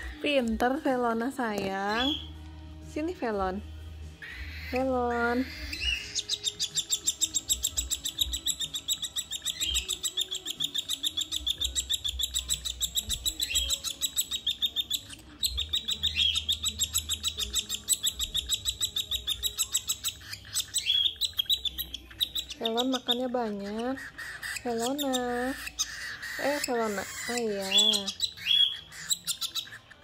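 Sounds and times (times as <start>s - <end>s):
baby bird begging chirps: 0.0s - 2.4s, 4.2s - 30.0s.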